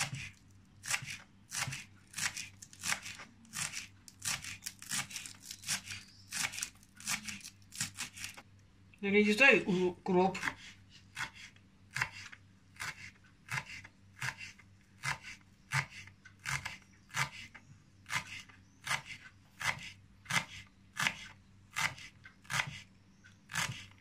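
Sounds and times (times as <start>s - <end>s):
knife chopping on wooden board: 0.0s - 7.2s, 11.2s - 17.5s.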